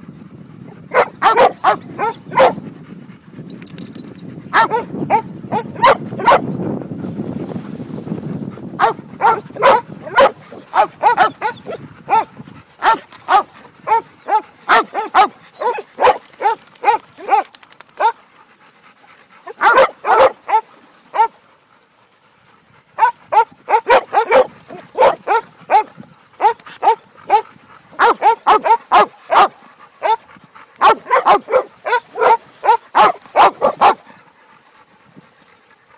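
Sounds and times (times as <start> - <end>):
dog barking sharply: 0.9 - 2.5, 12.8 - 17.4, 19.6 - 20.6, 28.0 - 30.2, 30.8 - 34.0.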